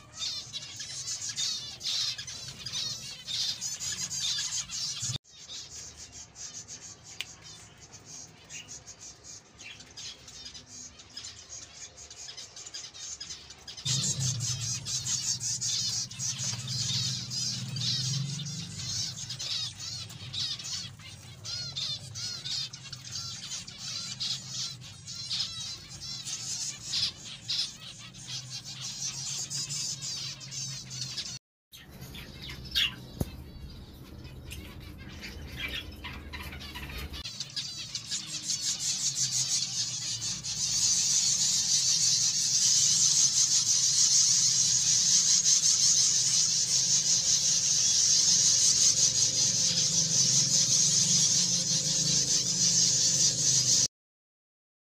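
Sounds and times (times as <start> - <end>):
caged birds chirping: 0.0 - 53.9.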